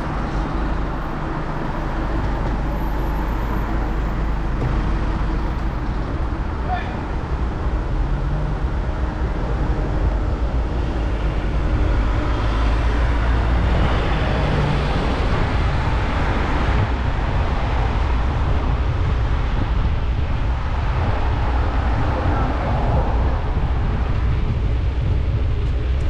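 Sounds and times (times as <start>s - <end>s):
city road traffic: 0.0s - 26.0s
wind rushing over microphone: 0.0s - 26.0s.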